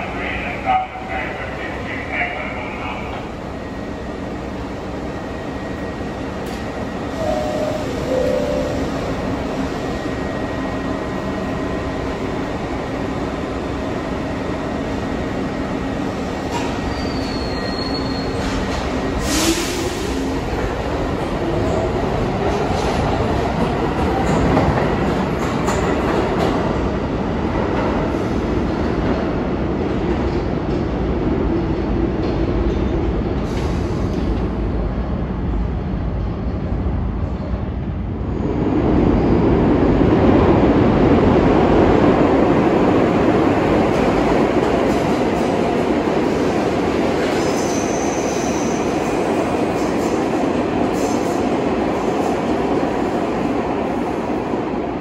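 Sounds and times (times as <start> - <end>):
subway train wheel and rail noise: 0.0 - 55.0
wheel squeal: 16.9 - 18.6.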